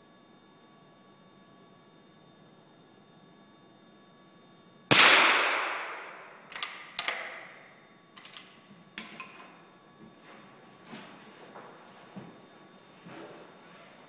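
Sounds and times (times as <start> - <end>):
rifle shot echoing indoors: 4.9 - 8.4
clicks and knocks of rifle handling: 8.2 - 9.4.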